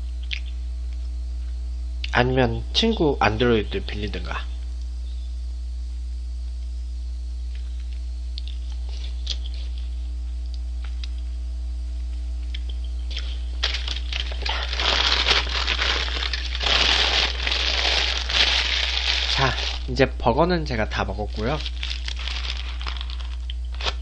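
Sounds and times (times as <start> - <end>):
low electrical hum: 0.0 - 24.0
paper wrapper crinkling: 13.1 - 19.9, 21.2 - 24.0.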